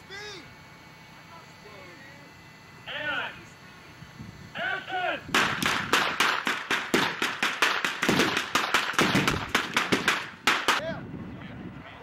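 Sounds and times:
rapid gunshots: 5.3s - 10.8s.

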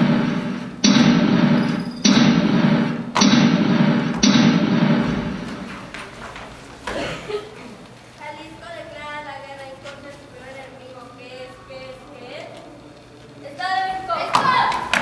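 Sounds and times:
heavy booming thumps: 0.0s - 5.9s.

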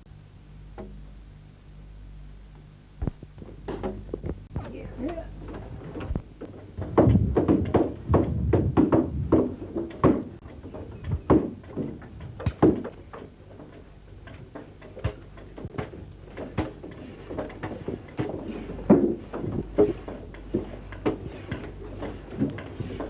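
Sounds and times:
hand tools chopping wood: 14.4s - 23.0s.

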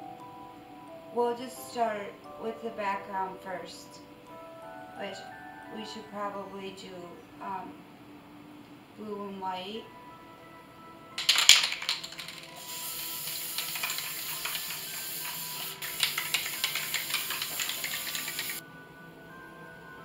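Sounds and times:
background music: 0.0s - 20.0s
spray can hissing: 11.2s - 18.6s
spray can rattling: 11.2s - 18.6s.

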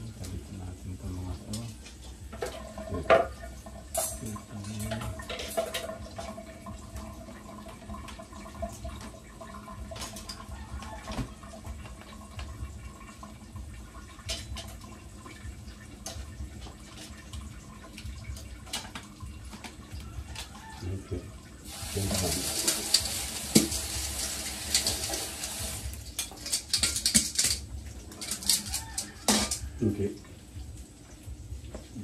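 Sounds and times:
water running and dripping: 0.0s - 32.0s
bowl and utensils clinking: 2.3s - 6.4s, 21.8s - 29.8s.

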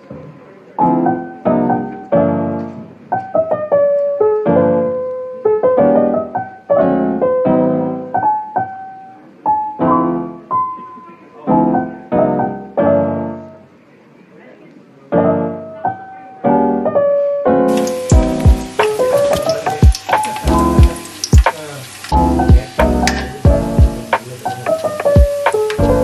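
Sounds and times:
slow piano music: 0.0s - 14.0s, 15.0s - 26.0s.

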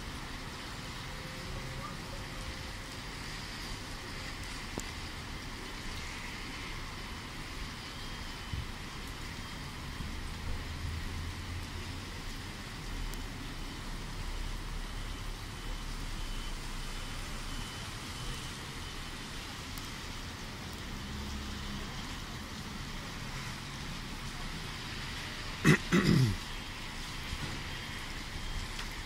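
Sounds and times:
distant road traffic: 0.0s - 29.0s.

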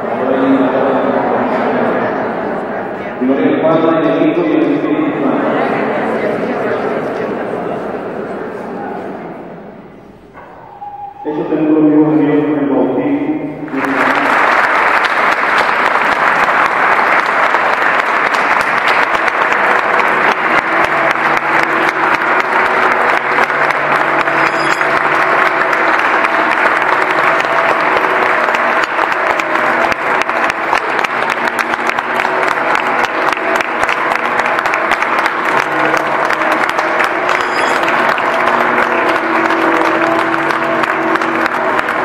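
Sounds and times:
faint sustained tones: 8.6s - 12.6s
crowd applauding: 13.7s - 42.0s.

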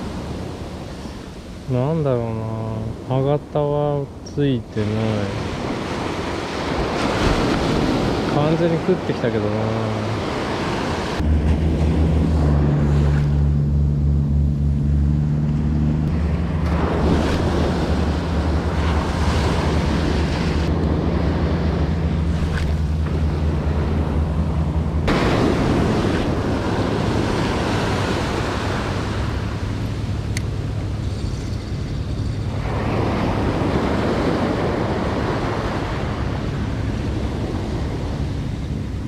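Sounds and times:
ocean surf breaking: 0.0s - 39.0s
wind on microphone: 0.0s - 39.0s
steady low hum: 11.1s - 39.0s.

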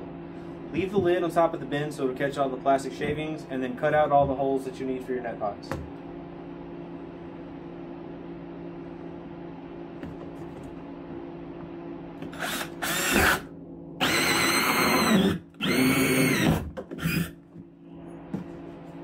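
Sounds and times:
steady low hum: 0.0s - 19.0s
cordless drill cutting plastic: 12.3s - 13.4s, 14.0s - 17.4s.

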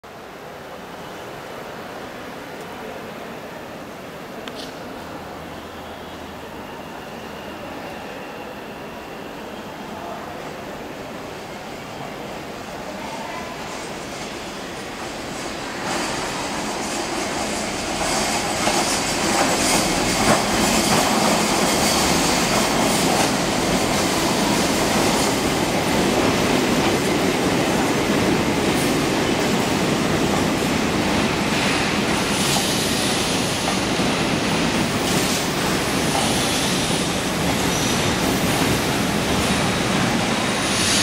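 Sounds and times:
electric train passing: 0.2s - 41.0s
wheels clacking on rails: 13.7s - 41.0s.

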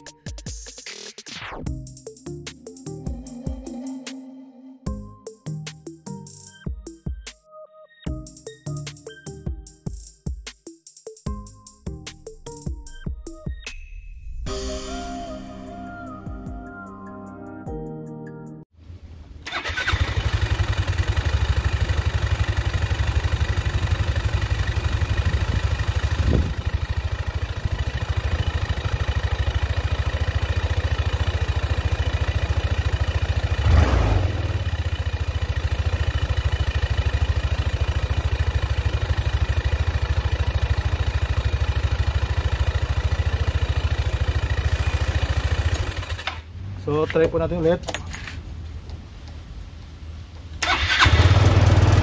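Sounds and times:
scooter engine starting and idling: 19.4s - 46.5s, 50.6s - 52.0s.

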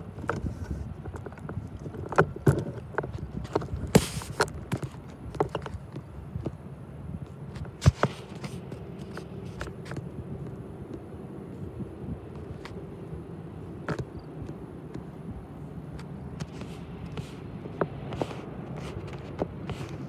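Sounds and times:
sharp clicks and scrapes: 7.5s - 10.1s, 16.0s - 20.0s.

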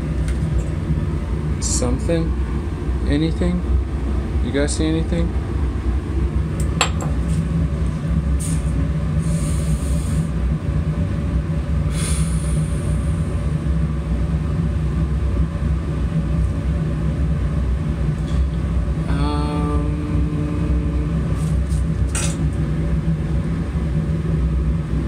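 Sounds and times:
steady low rumble: 0.0s - 25.0s
short hisses: 11.9s - 12.8s.

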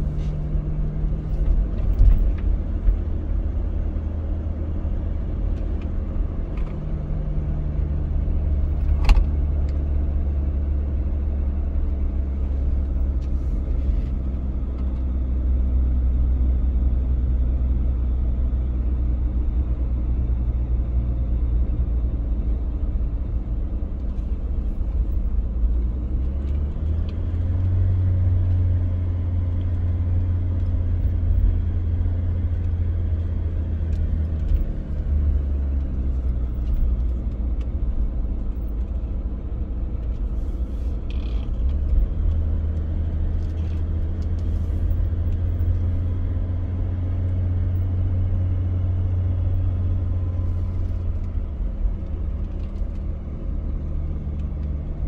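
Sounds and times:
low rumble: 0.0s - 55.0s.

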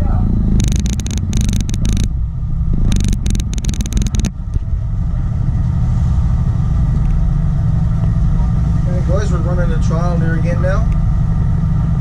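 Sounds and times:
diesel boat engine rumbling: 0.0s - 12.0s
rapid crackling: 0.6s - 2.1s, 2.8s - 4.4s.

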